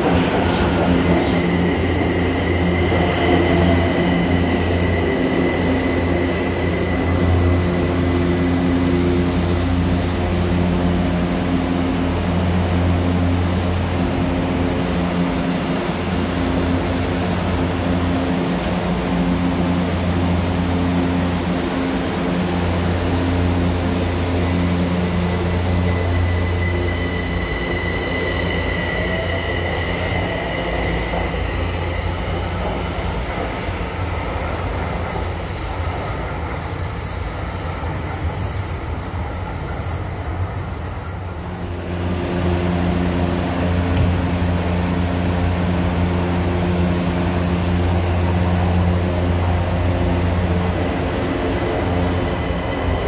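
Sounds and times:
train electric hum: 0:00.0 - 0:53.0
high wheel squeals: 0:06.3 - 0:07.4.

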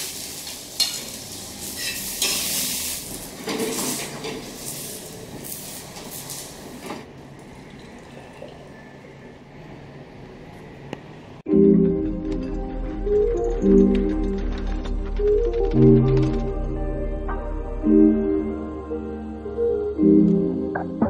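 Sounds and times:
omelette sizzling in a pan: 0:00.0 - 0:03.3
spatula scraping a pan: 0:00.8 - 0:05.0.

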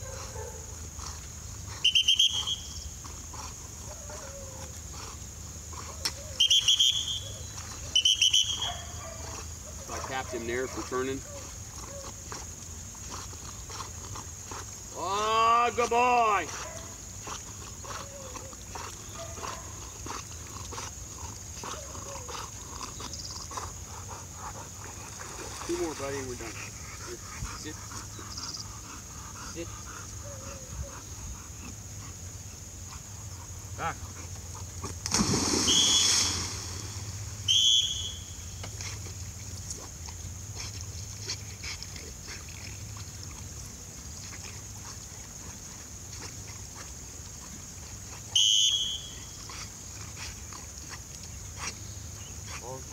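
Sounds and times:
shrill whistle blasts: 0:01.8 - 0:02.8, 0:06.4 - 0:07.3, 0:08.0 - 0:08.8, 0:35.6 - 0:36.3, 0:37.5 - 0:38.3, 0:48.4 - 0:49.2
dog splashing into water: 0:35.0 - 0:37.3.

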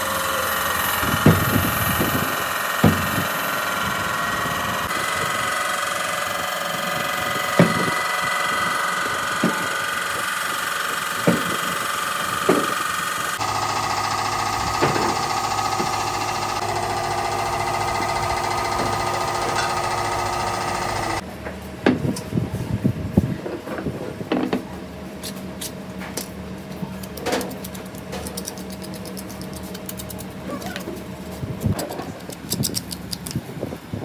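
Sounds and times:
workshop machine humming: 0:00.0 - 0:22.7
faint motor hum: 0:00.0 - 0:34.0.

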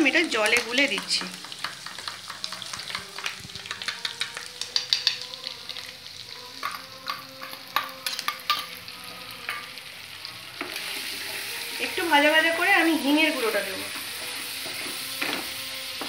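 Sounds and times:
meat sizzling in pan: 0:00.0 - 0:16.0.

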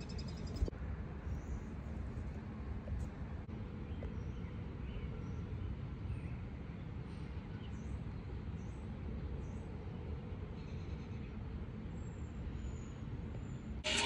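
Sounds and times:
small birds chirping: 0:00.0 - 0:00.7.

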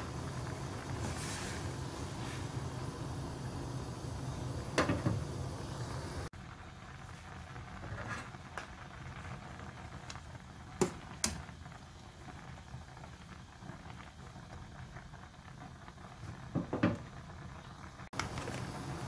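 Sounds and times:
broth bubbling in a saucepan: 0:00.0 - 0:19.0.

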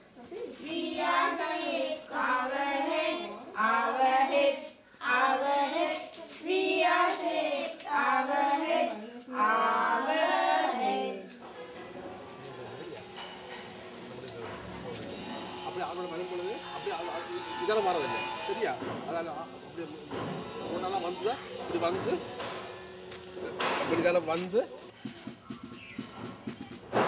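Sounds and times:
children singing: 0:00.6 - 0:11.9.

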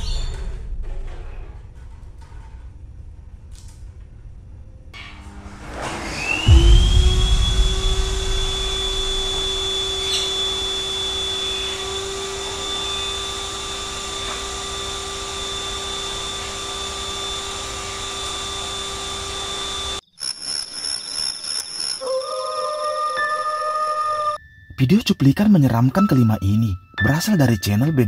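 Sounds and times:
vacuum cleaner running: 0:05.2 - 0:20.0
music: 0:22.7 - 0:28.0.

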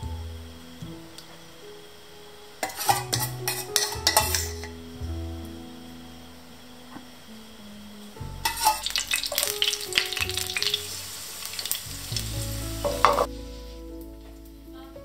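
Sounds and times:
garlic sizzling in oil: 0:02.6 - 0:04.9, 0:08.2 - 0:14.5.

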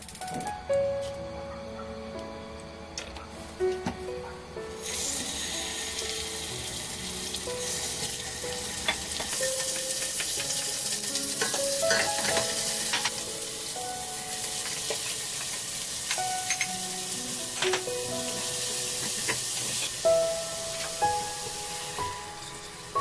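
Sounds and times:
meat sizzling in oil: 0:04.7 - 0:23.0.

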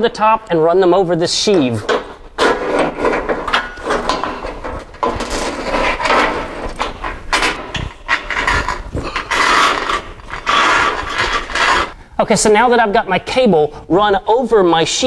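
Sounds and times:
cable scraping against metal column: 0:01.4 - 0:12.0.

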